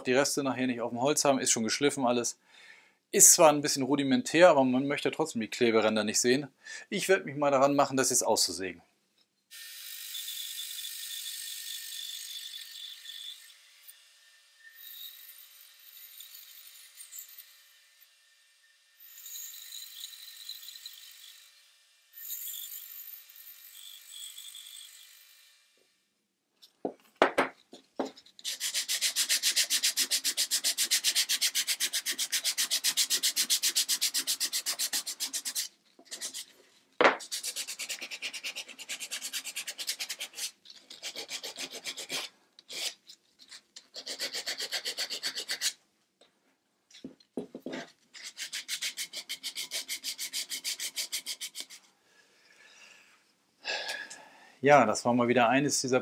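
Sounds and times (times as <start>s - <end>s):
sandpaper rubbing on wood: 28.4s - 36.6s, 37.2s - 43.0s, 43.9s - 45.8s, 48.2s - 51.8s.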